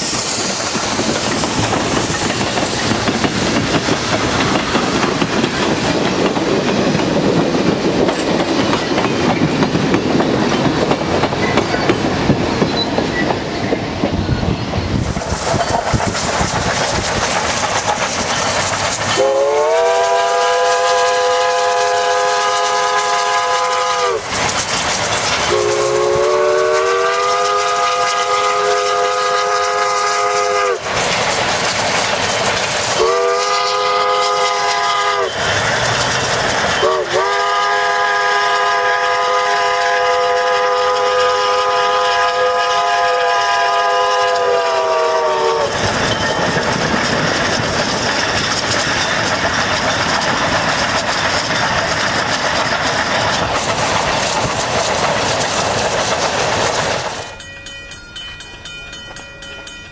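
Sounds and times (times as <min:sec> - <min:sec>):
rush of running train: 0:00.0 - 0:59.9
steam locomotive whistle blasts: 0:19.2 - 0:24.3, 0:25.5 - 0:30.8, 0:33.0 - 0:35.4, 0:36.8 - 0:45.8.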